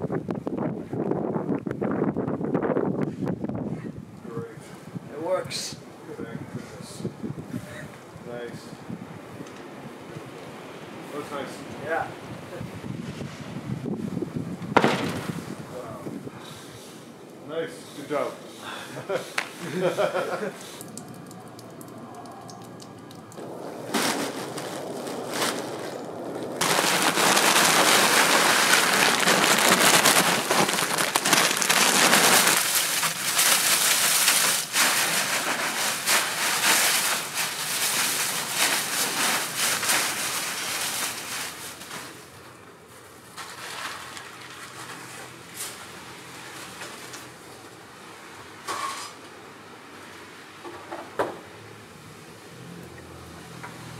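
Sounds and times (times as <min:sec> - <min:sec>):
dry leaves rustling and crackling: 0:22.7 - 0:47.6.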